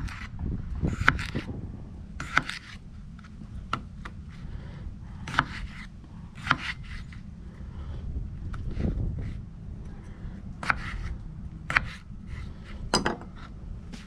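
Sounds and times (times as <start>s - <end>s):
knife cutting potatoes: 0.9s - 1.5s, 2.2s - 2.8s, 5.3s - 7.2s, 10.6s - 11.1s.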